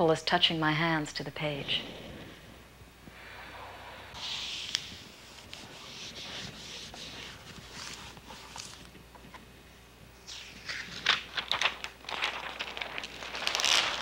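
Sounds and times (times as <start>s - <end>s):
paper rustling under hands: 4.2s - 9.0s, 10.2s - 14.0s.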